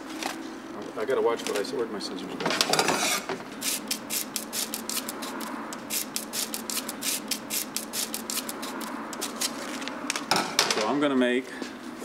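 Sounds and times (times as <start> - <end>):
scissors cutting sandpaper: 3.6 - 9.6.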